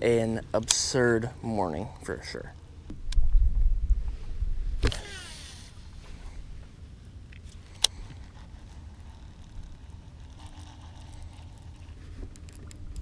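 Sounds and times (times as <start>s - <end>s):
faint steady wind: 0.0s - 13.0s
rush of wind from casting arm: 3.0s - 6.7s
fishing reel spool whirring: 7.6s - 13.0s
sharp reel click: 8.9s - 13.0s.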